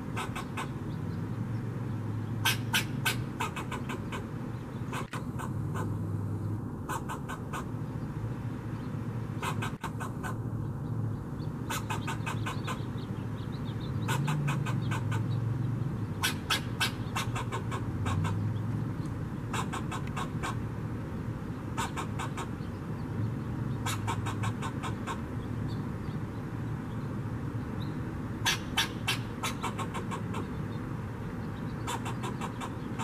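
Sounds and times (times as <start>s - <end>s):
squirrel alarm chatter: 0.0s - 0.9s, 2.4s - 6.0s, 6.9s - 7.7s, 9.4s - 10.4s, 11.6s - 13.1s, 13.8s - 15.4s, 16.1s - 18.4s, 19.5s - 20.6s, 21.7s - 22.7s, 23.8s - 25.4s, 28.4s - 30.8s, 31.7s - 33.0s.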